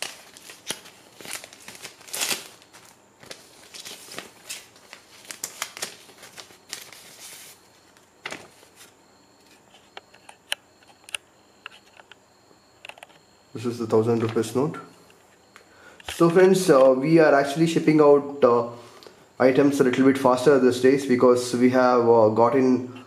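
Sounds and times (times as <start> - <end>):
plastic sleeve crinkling: 0.0 - 7.6.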